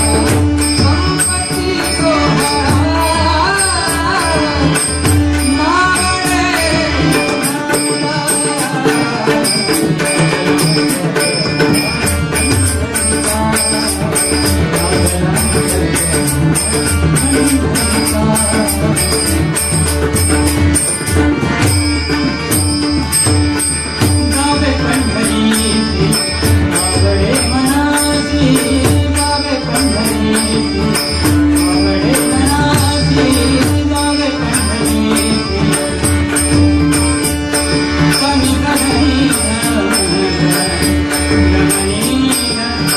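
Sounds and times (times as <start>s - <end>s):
steady percussion beat: 0.0s - 42.9s.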